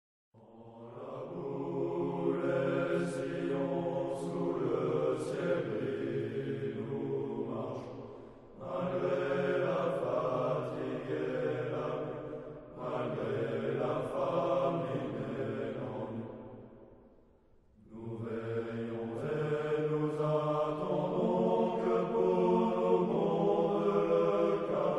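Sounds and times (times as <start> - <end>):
men singing together: 8.6 - 12.2, 12.8 - 16.1, 17.9 - 24.9.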